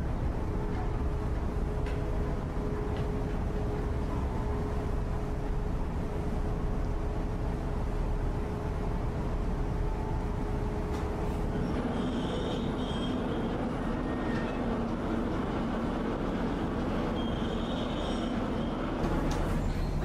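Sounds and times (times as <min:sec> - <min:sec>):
ferry mechanical rumble: 0:00.0 - 0:20.0
high metallic squeal: 0:11.8 - 0:14.7, 0:17.1 - 0:18.8.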